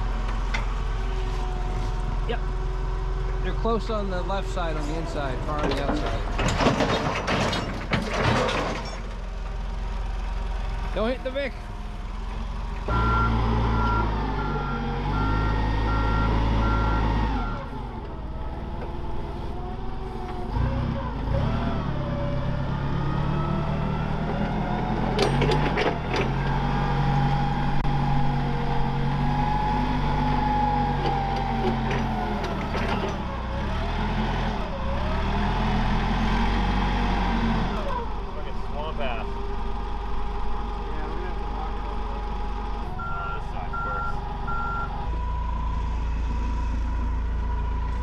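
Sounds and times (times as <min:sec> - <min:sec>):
forklift engine revving: 0:11.7 - 0:48.0
reversing beeper: 0:12.9 - 0:17.7, 0:43.0 - 0:45.1.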